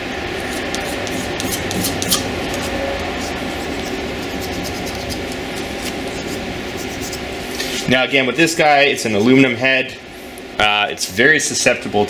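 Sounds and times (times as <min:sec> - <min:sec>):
steady background hum: 0:00.0 - 0:12.0
razor blade scraping metal: 0:00.4 - 0:07.8.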